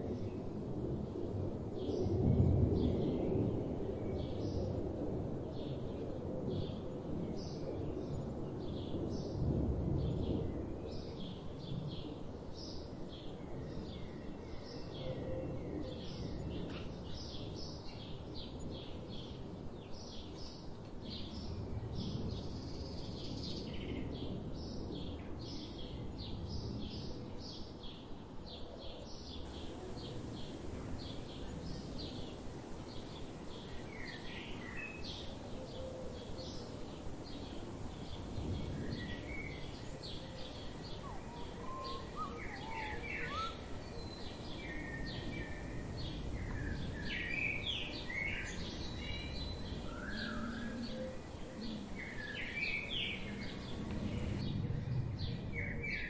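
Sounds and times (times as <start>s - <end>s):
small songbirds chirping: 7.4s - 56.0s
low background rumble: 29.5s - 41.6s, 48.6s - 55.4s.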